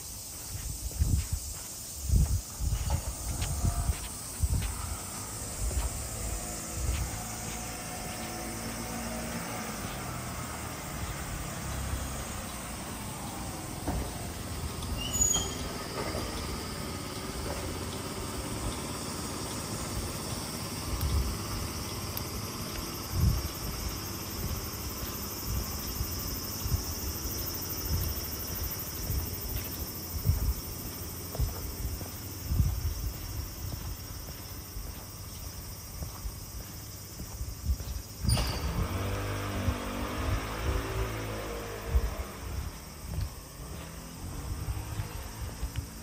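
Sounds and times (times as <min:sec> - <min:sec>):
insects chorus: 0:00.0 - 0:46.0
road noise hum: 0:00.0 - 0:46.0
vehicle engine running nearby: 0:00.0 - 0:46.0
soft footfalls: 0:00.2 - 0:10.1, 0:29.1 - 0:38.1, 0:42.2 - 0:46.0.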